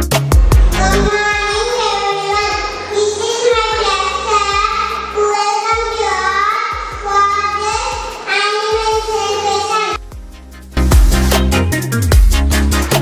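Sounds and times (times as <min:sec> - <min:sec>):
background music with low beat: 0:00.0 - 0:09.3, 0:10.0 - 0:13.0
child singing into a microphone: 0:00.8 - 0:10.0.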